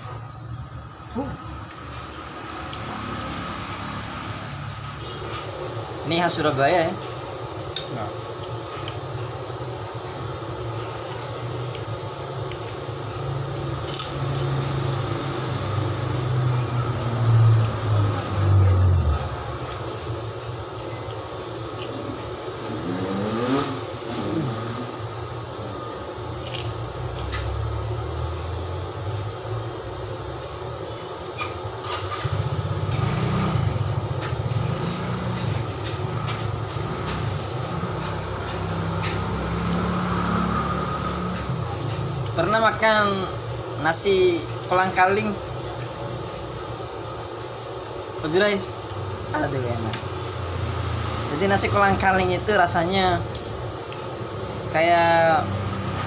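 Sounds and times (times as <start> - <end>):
low motor hum: 13.0 - 20.9, 32.2 - 42.4.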